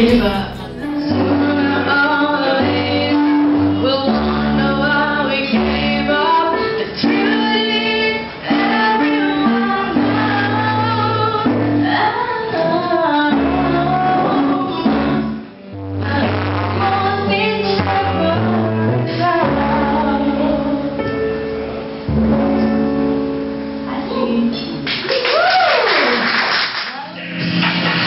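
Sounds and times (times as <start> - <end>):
woman singing: 0.0 - 15.4, 16.0 - 21.0
piano chords: 0.0 - 16.1.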